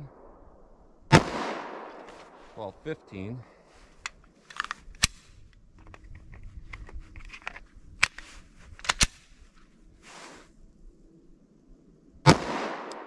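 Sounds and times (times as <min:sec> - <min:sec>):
soft rustle: 0:01.9 - 0:10.8
pistol clicks: 0:08.8 - 0:09.2, 0:12.8 - 0:13.0.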